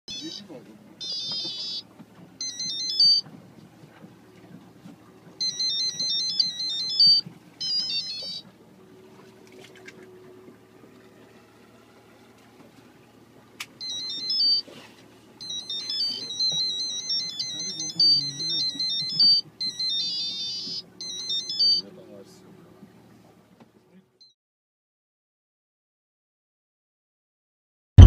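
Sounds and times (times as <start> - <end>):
electronic beeping melody: 0.1 - 1.8, 2.4 - 3.3, 5.4 - 8.4, 13.8 - 14.7, 15.4 - 21.9.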